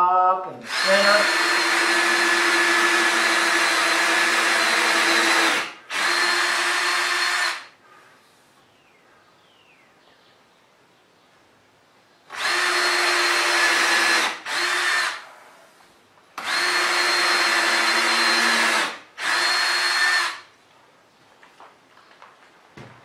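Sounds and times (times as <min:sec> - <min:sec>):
cordless drill boring into wood: 0:00.6 - 0:07.7, 0:12.3 - 0:15.2, 0:16.4 - 0:20.5.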